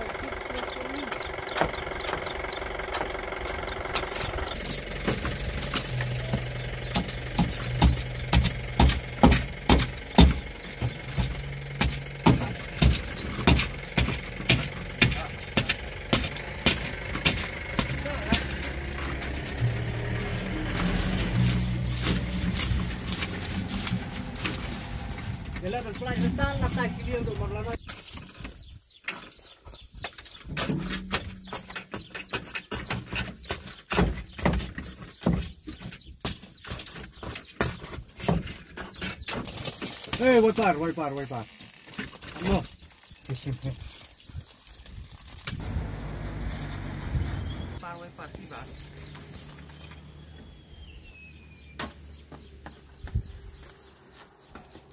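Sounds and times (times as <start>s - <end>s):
glass crackling and crunching: 4.0s - 25.7s, 36.2s - 45.6s.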